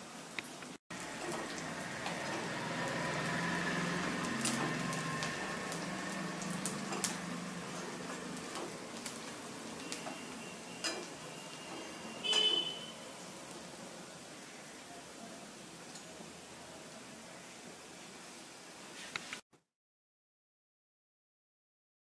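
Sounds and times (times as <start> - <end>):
onions sizzling in a pan: 0.2 - 19.4
spatula clinking on pan: 10.8 - 11.3.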